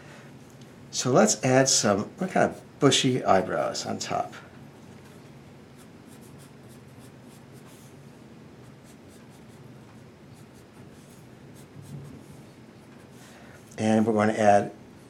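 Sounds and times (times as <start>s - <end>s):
pencil scratching on paper: 5.8s - 7.9s, 8.6s - 13.2s.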